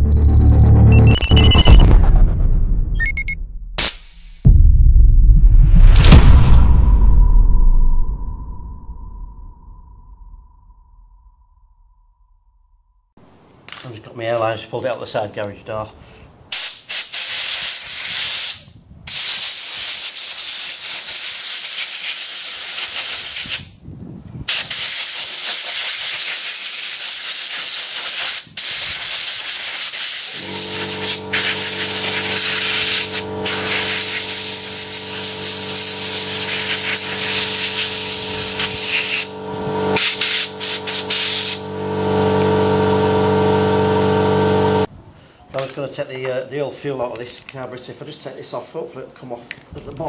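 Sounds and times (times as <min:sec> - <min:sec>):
compressed air blasting: 0:16.5 - 0:23.7, 0:24.5 - 0:43.7
steady hum: 0:30.4 - 0:44.9.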